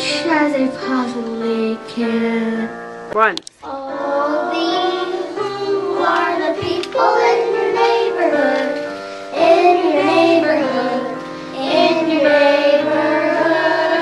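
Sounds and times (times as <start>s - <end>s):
backing music: 0.0s - 14.0s
children singing: 3.6s - 14.0s.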